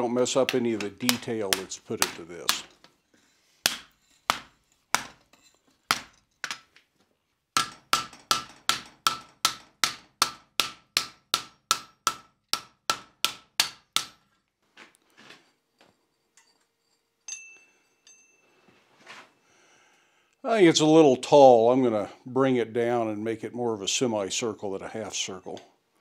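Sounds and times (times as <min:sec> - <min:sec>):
mallet striking steel on anvil: 0:00.4 - 0:02.8, 0:03.6 - 0:06.6, 0:07.6 - 0:14.2
ringing metal clink: 0:15.8 - 0:18.8.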